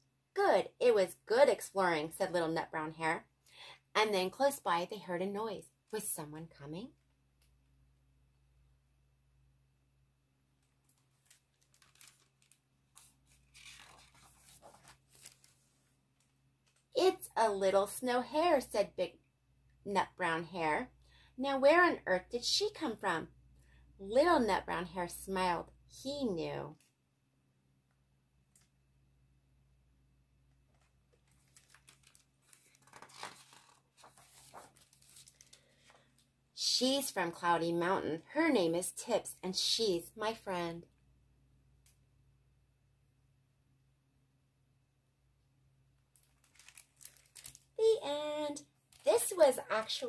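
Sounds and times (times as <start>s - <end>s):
book pages turning: 10.6s - 16.9s, 30.6s - 36.2s, 46.2s - 47.6s.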